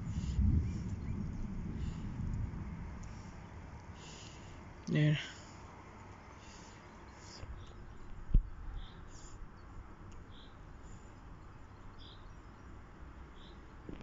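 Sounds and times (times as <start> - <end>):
low storm rumble: 0.0 - 9.6.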